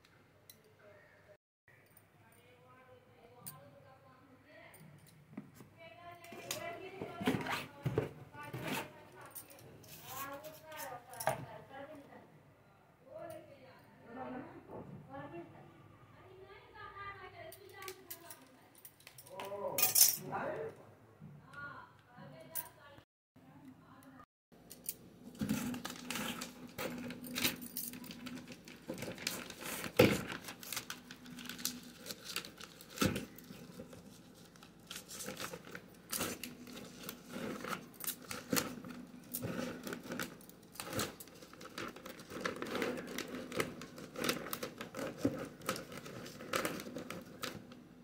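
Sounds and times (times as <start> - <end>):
plastic sheet crinkling: 25.3 - 47.8.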